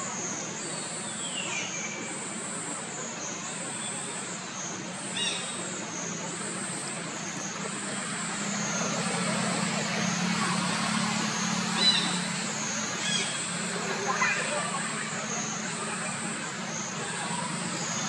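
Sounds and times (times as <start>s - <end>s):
high-pitched pulsing drone: 5.4s - 18.0s.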